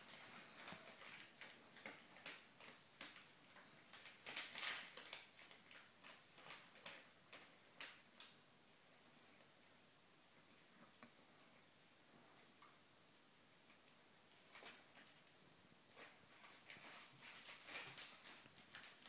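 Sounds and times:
crisp packet crinkling: 0:00.0 - 0:08.3, 0:16.0 - 0:19.0.

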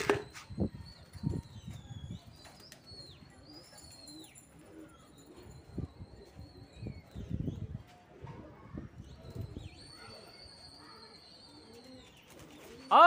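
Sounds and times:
pigeons cooing: 0:02.8 - 0:13.0.

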